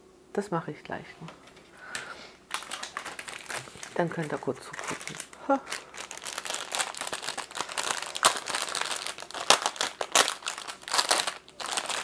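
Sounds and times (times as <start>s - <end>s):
plastic bags crinkling: 2.5s - 12.0s.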